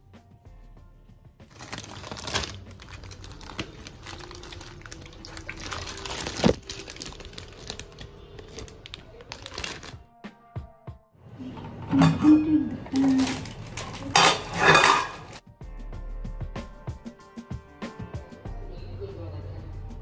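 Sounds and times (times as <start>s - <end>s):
plastic packaging crinkling: 1.5s - 10.0s, 12.9s - 15.4s.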